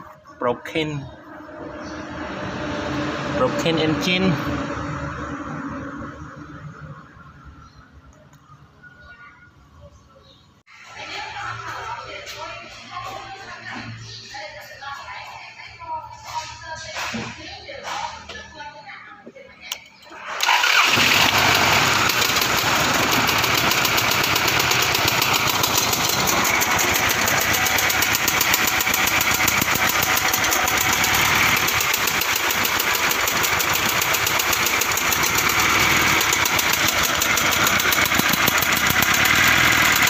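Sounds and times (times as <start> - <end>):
engine mechanical clatter: 20.3 - 40.0
car engine running: 20.6 - 40.0.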